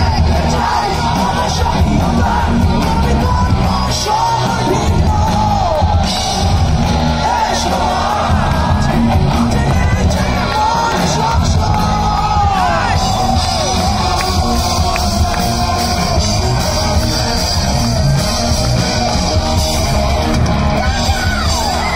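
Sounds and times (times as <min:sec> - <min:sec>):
crowd shouting along: 0:00.0 - 0:21.9
live rock band playing: 0:00.0 - 0:21.9.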